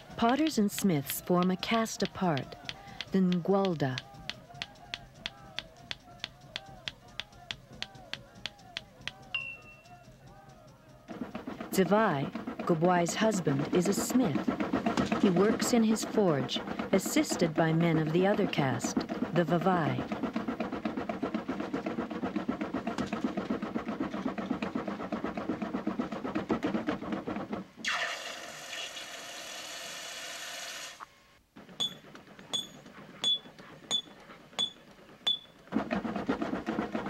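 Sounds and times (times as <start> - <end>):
forge bellows puffing: 0.0 - 28.0, 31.6 - 37.0
ringing metal strikes: 9.3 - 9.9, 31.8 - 35.6.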